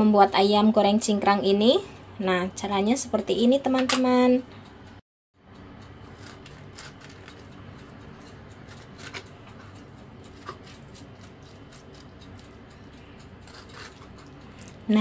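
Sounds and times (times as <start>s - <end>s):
steady low hum: 0.0s - 15.0s
knife scraping bone: 6.1s - 14.7s.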